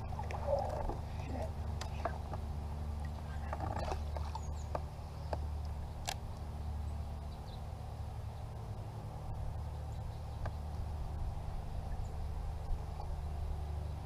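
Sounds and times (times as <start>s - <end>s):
river rumble: 0.0s - 14.0s
light clicks: 4.7s - 6.5s.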